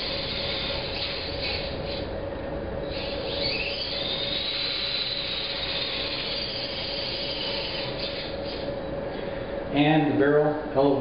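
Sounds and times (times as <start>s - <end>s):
electric motor whine: 0.0s - 2.2s, 2.8s - 8.9s.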